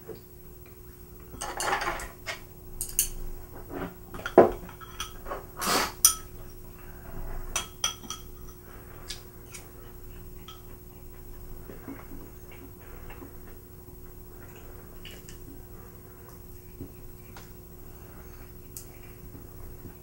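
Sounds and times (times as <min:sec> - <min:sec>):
faint steady hum: 0:00.0 - 0:20.0
chopsticks clinking on ceramic: 0:07.6 - 0:08.6.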